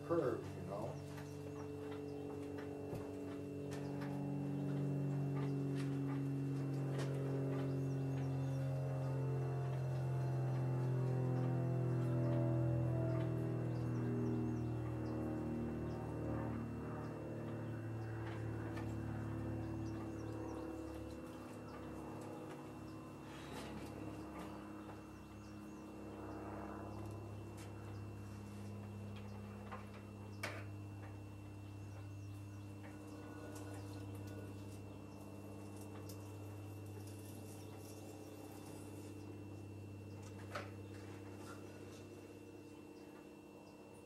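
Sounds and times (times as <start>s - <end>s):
steady low hum: 0.0s - 44.0s.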